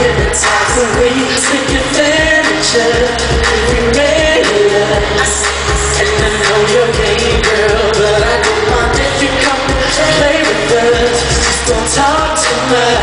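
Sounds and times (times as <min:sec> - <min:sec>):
man singing amplified: 0:00.0 - 0:13.0
pop backing track with steady beat: 0:00.0 - 0:13.0.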